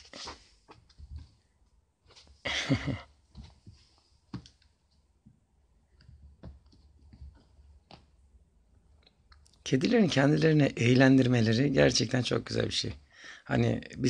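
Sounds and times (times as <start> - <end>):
kitten playing clicks and rustles: 5.9 - 8.2.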